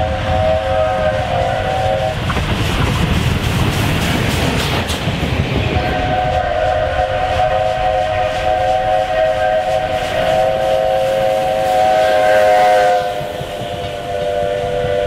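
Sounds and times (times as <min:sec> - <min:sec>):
steam locomotive whistle: 0:00.0 - 0:02.3, 0:05.8 - 0:15.0
locomotive rumble: 0:00.0 - 0:15.0.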